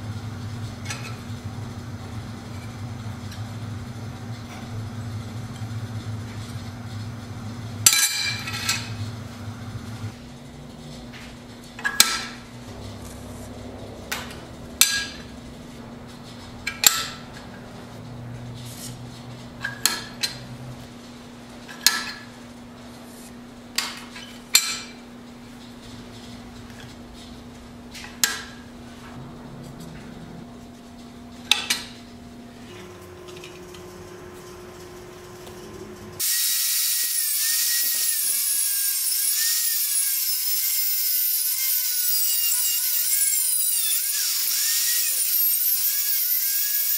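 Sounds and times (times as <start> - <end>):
steady low hum: 0.0 - 36.2.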